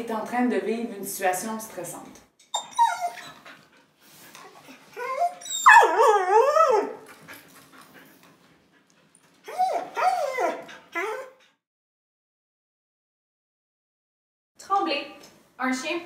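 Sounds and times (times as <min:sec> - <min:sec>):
dog whining: 0:02.5 - 0:03.5, 0:04.4 - 0:07.1, 0:09.4 - 0:11.5.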